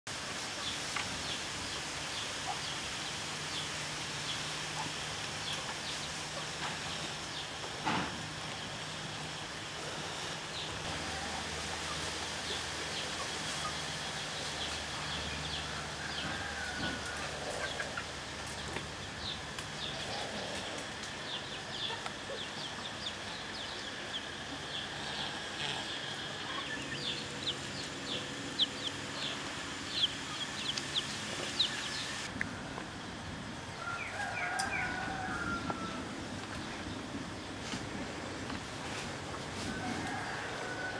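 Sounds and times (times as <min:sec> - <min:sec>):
steady background noise: 0:00.1 - 0:40.9
chickens clucking: 0:04.3 - 0:09.3, 0:09.9 - 0:32.8
small birds chirping: 0:17.6 - 0:32.3.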